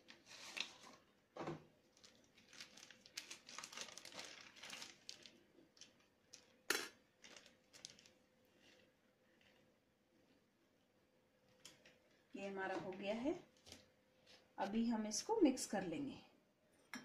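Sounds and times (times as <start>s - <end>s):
plastic bag crinkling: 0.0s - 1.0s, 1.8s - 9.7s.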